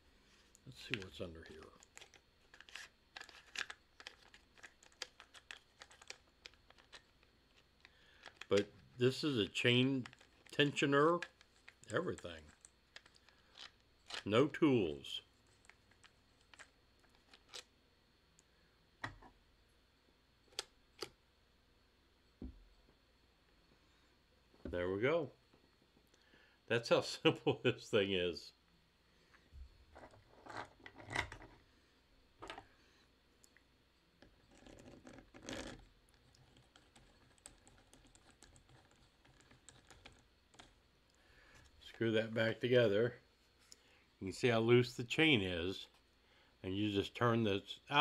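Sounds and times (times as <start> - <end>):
plastic scrape: 34.5 - 35.9.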